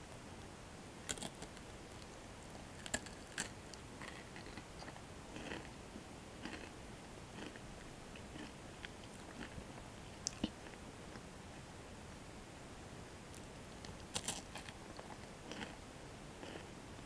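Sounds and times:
chewing: 2.8s - 5.7s, 6.4s - 6.7s, 7.4s - 7.6s, 8.2s - 9.6s, 13.3s - 15.8s, 16.4s - 16.7s.

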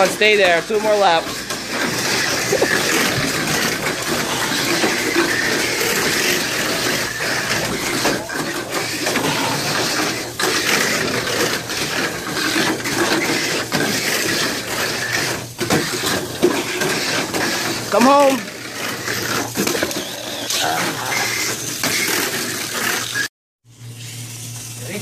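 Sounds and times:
toy cars clattering on track: 0.0s - 23.3s
whir of small electric motors: 1.2s - 23.3s.

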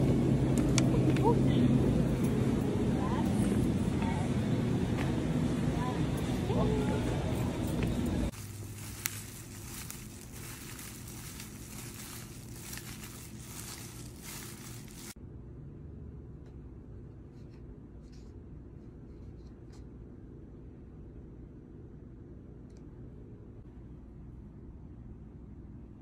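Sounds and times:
low hum: 0.0s - 17.1s
plastic glove crinkling: 8.3s - 15.2s
vegetables squishing: 8.3s - 15.2s.

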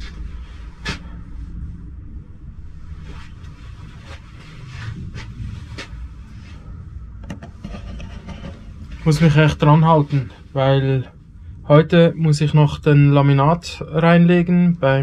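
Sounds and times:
soft knocks and rubs: 3.0s - 9.2s
camera handling rumble: 7.2s - 8.7s.

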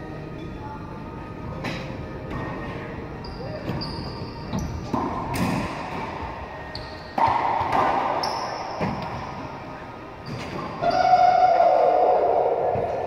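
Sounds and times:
sneakers squeaking on hardwood: 3.2s - 5.1s, 6.6s - 9.4s, 10.2s - 10.8s
racquetball hits echoing: 4.9s - 6.3s, 7.1s - 9.3s.

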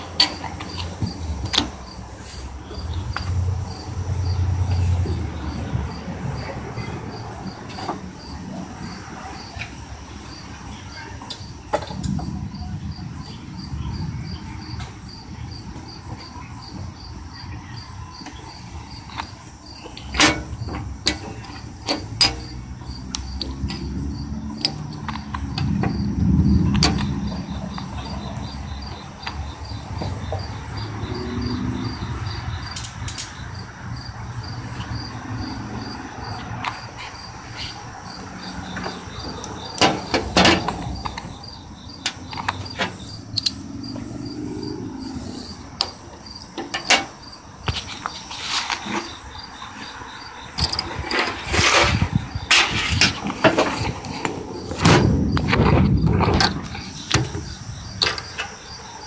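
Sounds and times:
crickets chirping: 0.0s - 59.0s
sharp clicks and knocks: 19.1s - 23.9s, 52.5s - 58.6s.

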